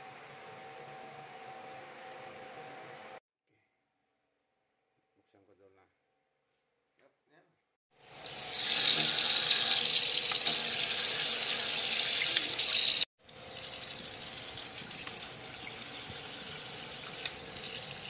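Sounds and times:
faucet water stream: 8.1 - 18.0.

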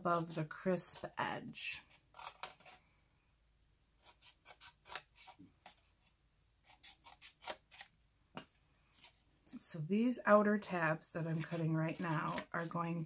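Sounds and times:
scissors snipping cardstock: 2.2 - 2.7, 4.0 - 5.8, 6.7 - 7.9, 11.3 - 12.8.

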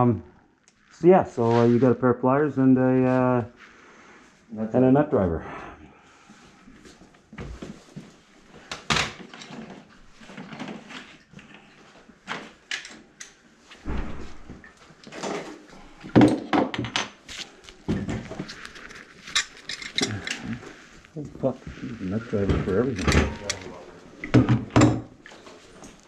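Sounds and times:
rustling: 17.2 - 24.2
knocks and clunks of tools: 22.4 - 25.1.

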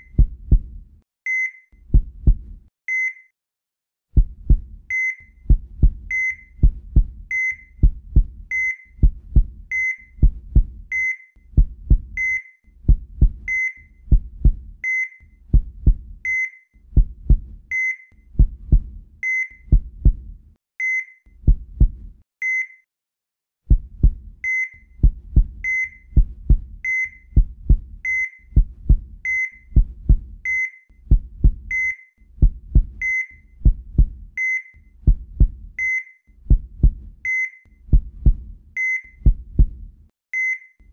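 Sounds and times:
heartbeat double thumps: 0.0 - 0.9, 1.9 - 2.7, 4.2 - 14.9, 15.5 - 16.3, 16.9 - 17.7, 18.3 - 20.4, 21.4 - 22.2, 23.7 - 31.8, 32.4 - 34.4, 35.0 - 35.8, 36.4 - 37.3, 37.9 - 38.6, 39.2 - 40.0.

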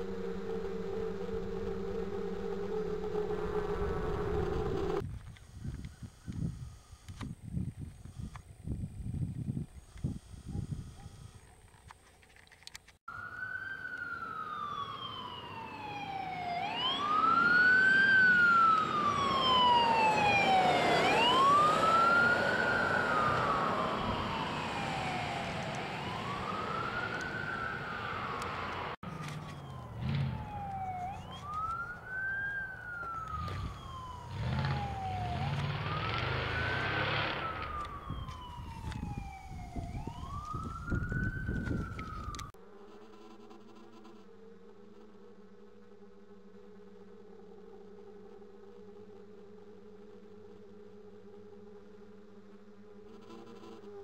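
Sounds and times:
emergency vehicle siren wailing: 0.0 - 5.0, 13.1 - 42.6
low rumble: 0.0 - 5.1.

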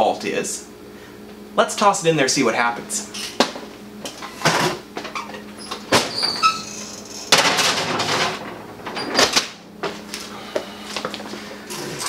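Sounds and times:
metal scraping and clatter: 6.0 - 9.4.

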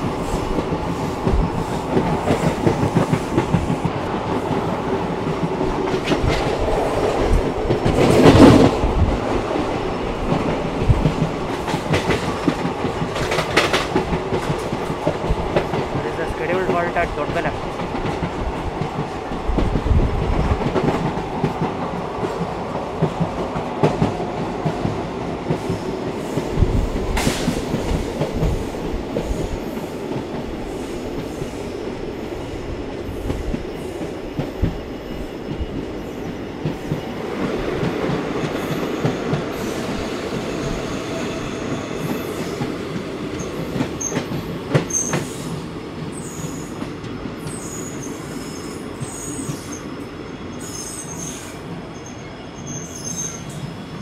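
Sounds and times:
train wheels running on rails: 0.0 - 54.0
high wheel squeal: 50.6 - 53.8.

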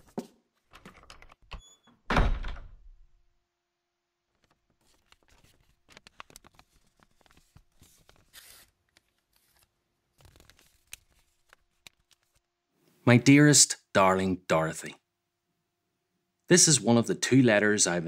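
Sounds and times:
paper tearing and rustling: 4.8 - 12.4.

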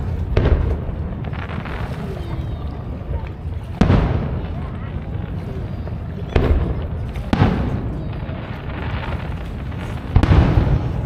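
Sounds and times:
fireworks booming: 0.0 - 11.0.

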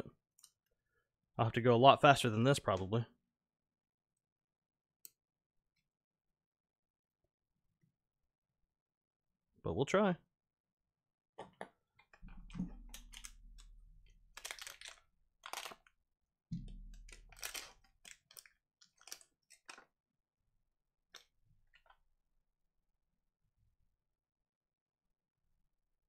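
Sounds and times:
foil wrappers crinkling and tearing: 14.2 - 15.9, 16.9 - 19.9.

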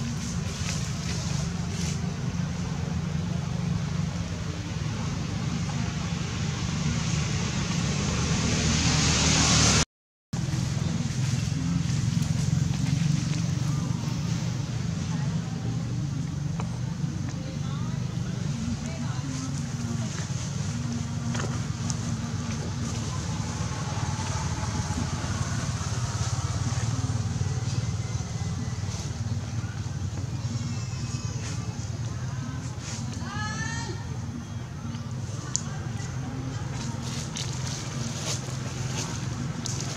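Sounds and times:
vehicle passing by: 0.0 - 9.8, 18.8 - 33.1
engine running at low revs: 10.4 - 30.8.

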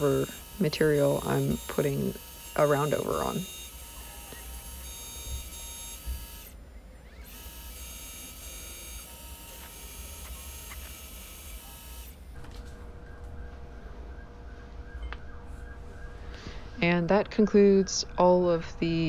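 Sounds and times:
milling machine cutting whine: 0.0 - 13.8
machine low hum: 0.0 - 19.0.

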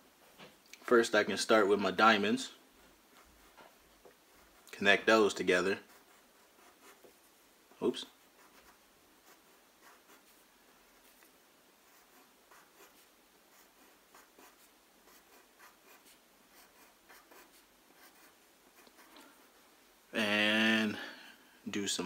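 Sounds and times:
pencil scratching on paper: 5.3 - 7.2, 8.2 - 10.4, 11.8 - 19.2.

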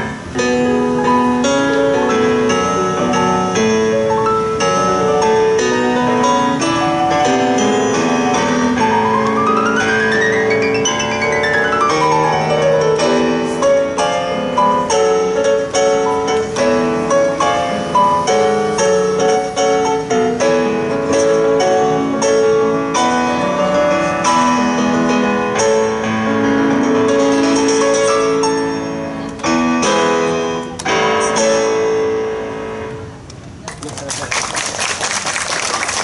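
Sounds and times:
electronic keyboard melody: 0.0 - 33.3.

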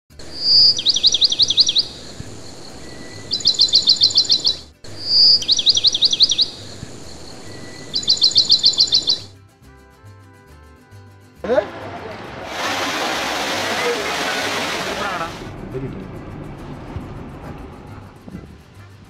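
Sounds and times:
bird whistle and trills: 0.2 - 9.4
soft background music: 0.2 - 12.5, 15.5 - 19.0.

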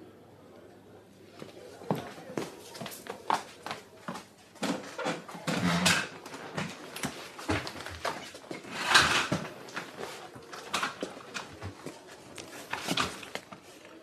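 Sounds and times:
footsteps: 1.4 - 14.0
papers rustling: 6.2 - 14.0.

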